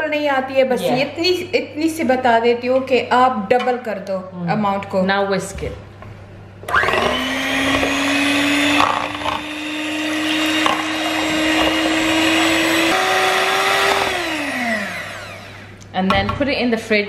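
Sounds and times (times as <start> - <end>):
electric hand mixer whining: 6.7 - 15.8.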